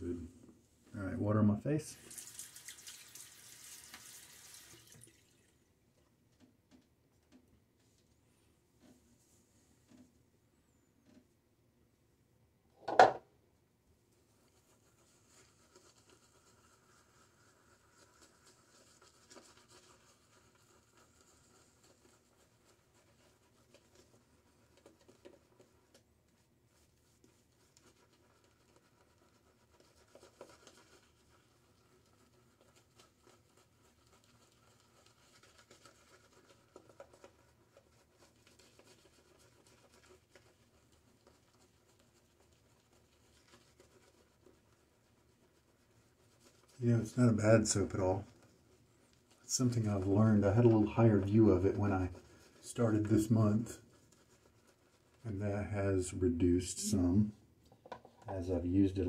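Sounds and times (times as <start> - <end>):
wet cloth rubbing a bearded face: 14.1 - 57.5
shaving brush scratching: 14.3 - 56.2.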